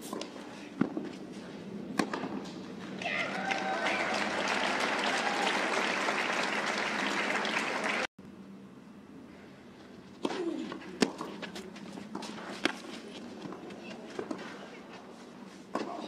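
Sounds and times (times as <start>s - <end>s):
crowd applauding: 3.0s - 8.1s.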